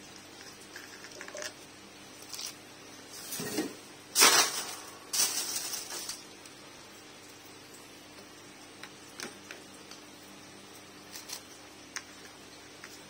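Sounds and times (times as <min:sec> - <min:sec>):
plastic packaging crinkling: 0:04.2 - 0:06.6.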